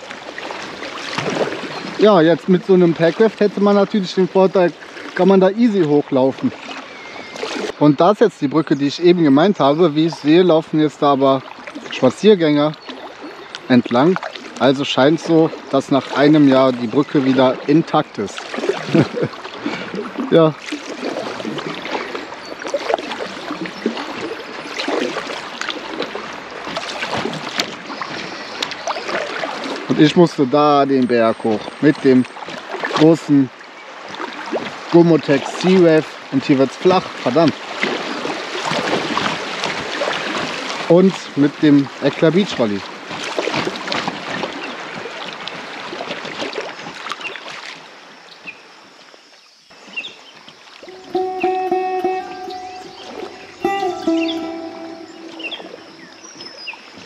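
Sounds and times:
paddle strokes splashing: 0.0s - 7.8s, 11.4s - 30.0s, 32.2s - 47.9s
river water trickling and splashing: 0.0s - 57.0s.

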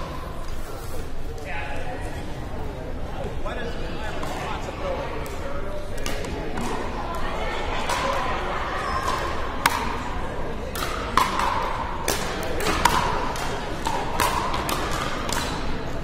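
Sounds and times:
ball bouncing: 10.7s - 15.6s
paddles hitting plastic ball: 10.7s - 15.7s.

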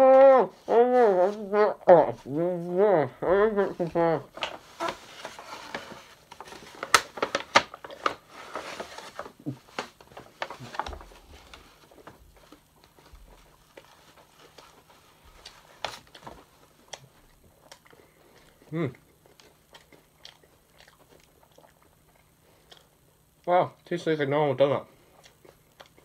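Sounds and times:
packaging and paper crinkling: 3.6s - 17.9s.

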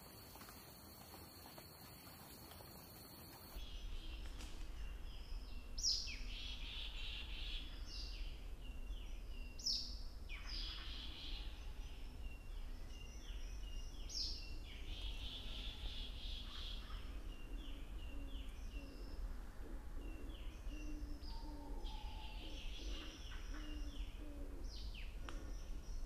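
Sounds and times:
songbird singing: 0.0s - 26.0s
steady low rumble: 3.6s - 21.9s.

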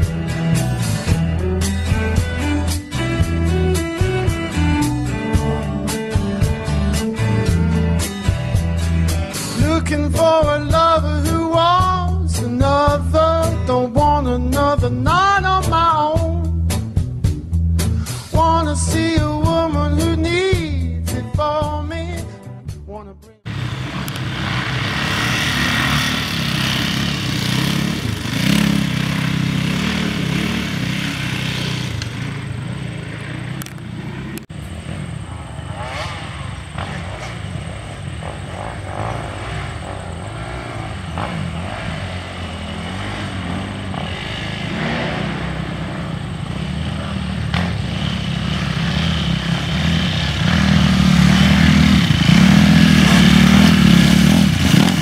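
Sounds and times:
dirt bike engines revving: 23.5s - 55.0s.

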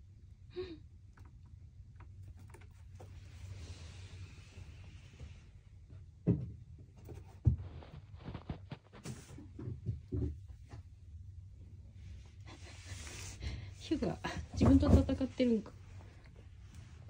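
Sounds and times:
light knocks and scuffles: 6.3s - 10.9s.

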